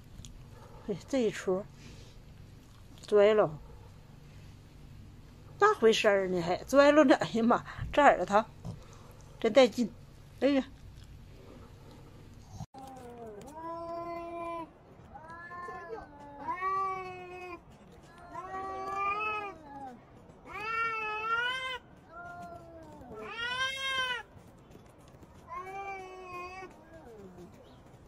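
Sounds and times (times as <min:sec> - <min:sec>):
cats yowling: 0:12.8 - 0:24.4, 0:25.3 - 0:27.6.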